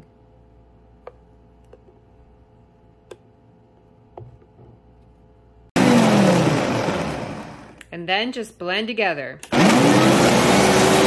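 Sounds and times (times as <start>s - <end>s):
blender running: 5.8s - 7.8s, 9.5s - 11.0s.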